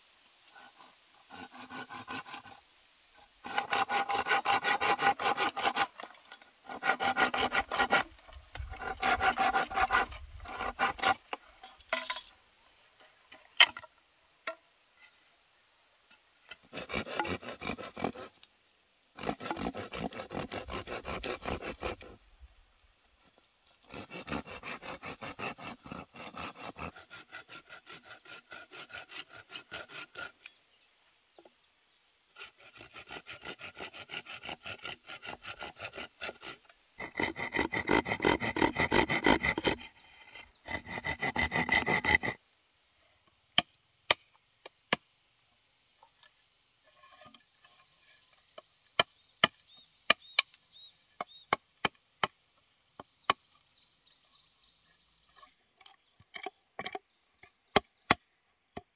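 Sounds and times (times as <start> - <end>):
hand saw cutting bamboo: 0.5 - 2.6, 3.2 - 12.2, 16.5 - 18.4, 19.2 - 22.2, 23.8 - 30.6, 32.3 - 42.4.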